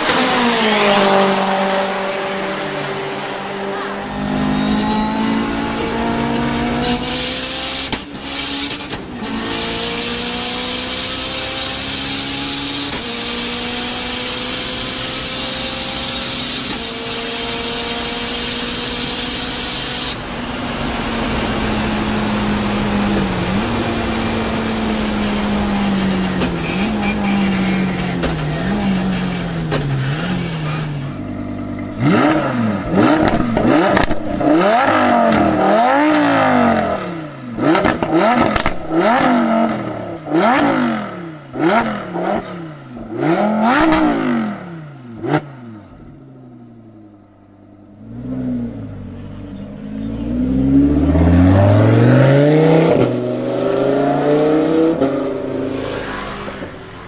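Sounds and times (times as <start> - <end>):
car engine accelerating through gears: 0.0 - 20.2, 20.9 - 46.2, 47.7 - 57.0
car engine revving in blips: 3.8 - 20.2, 21.3 - 46.3, 47.2 - 57.0.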